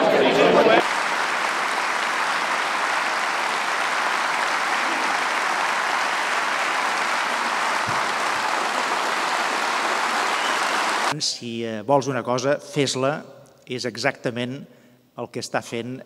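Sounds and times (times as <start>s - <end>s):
audience applauding: 0.8s - 11.2s.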